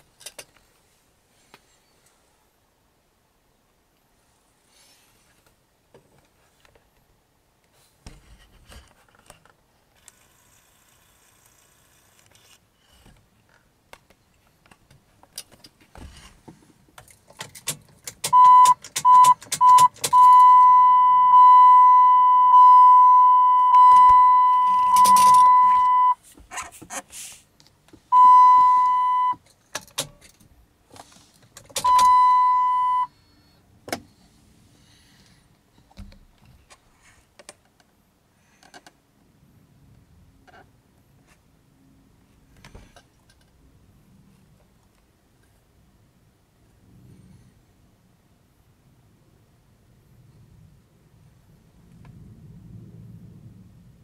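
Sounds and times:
car warning chime: 18.3s - 26.2s, 28.1s - 29.4s, 31.8s - 33.2s
keys rattling and clicking: 24.8s - 25.5s.

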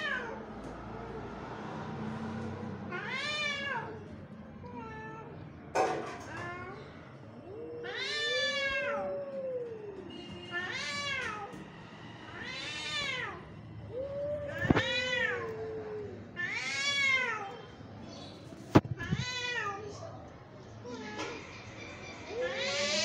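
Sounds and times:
cat yowling: 0.0s - 0.4s, 2.9s - 4.0s, 6.3s - 11.6s, 12.3s - 17.7s, 22.3s - 23.0s
cat moaning low: 6.6s - 17.6s.

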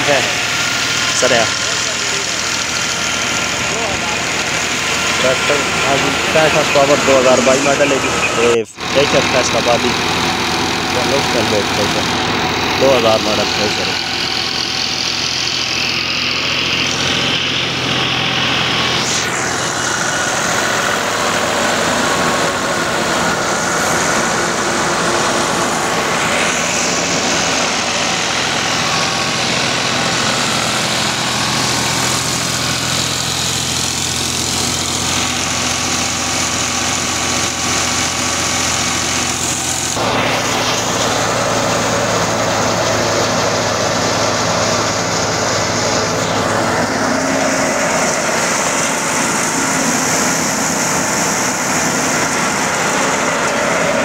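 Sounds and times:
thresher machine noise: 0.0s - 54.0s
tractor diesel engine running: 0.0s - 54.0s.

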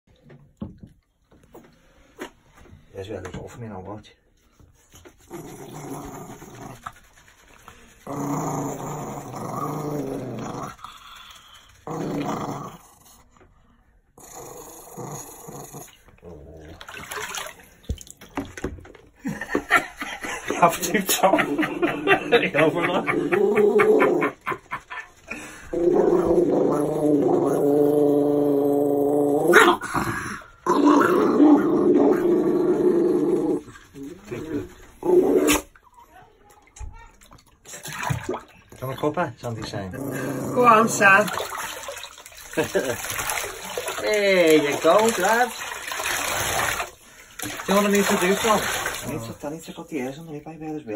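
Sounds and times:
small dog growling: 5.3s - 7.0s, 8.0s - 13.3s, 14.2s - 16.8s, 25.6s - 35.8s, 39.9s - 41.4s.

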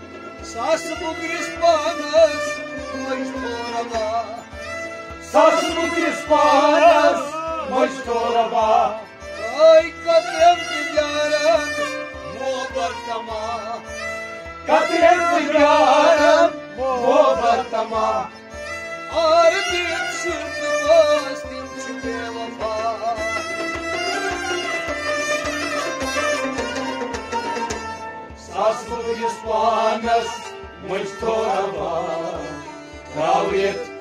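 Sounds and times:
man singing melismatic phrases: 5.3s - 13.9s.

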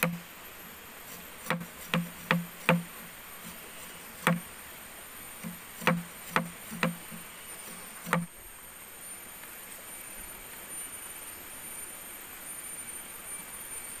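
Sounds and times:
sharp knocks: 0.0s - 0.2s, 1.1s - 3.6s, 4.2s - 4.5s, 5.4s - 7.3s, 8.0s - 8.3s
forest insects buzzing: 0.0s - 14.0s.

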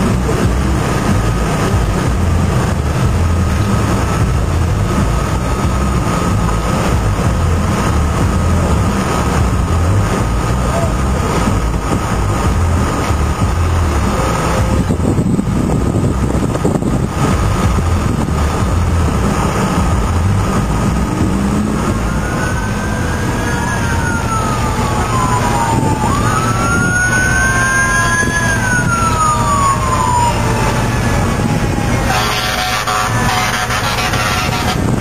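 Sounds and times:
fire roaring: 0.0s - 35.0s
siren wailing: 21.4s - 34.9s.

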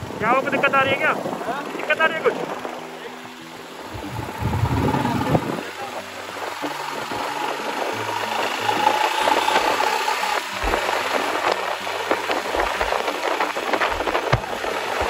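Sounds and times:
wind buffeting microphone: 0.0s - 15.0s
motorcycle engine running: 3.8s - 15.0s.

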